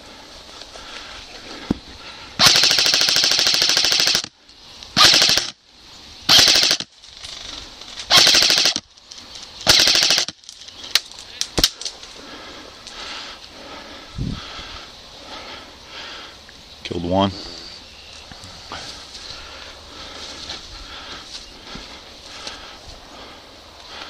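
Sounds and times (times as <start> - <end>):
airsoft rifle firing bursts: 2.4 - 4.3, 5.0 - 5.6, 6.3 - 6.9, 8.1 - 8.8, 9.6 - 10.4.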